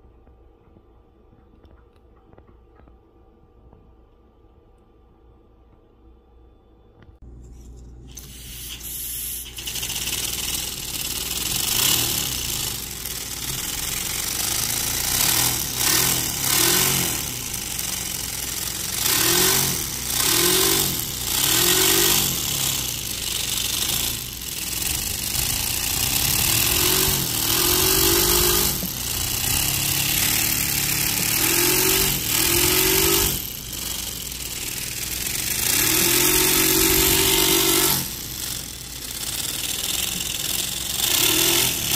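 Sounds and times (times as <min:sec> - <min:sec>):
compressed air hiss: 0:08.1 - 0:10.9
miniature engine revving: 0:08.1 - 0:41.9.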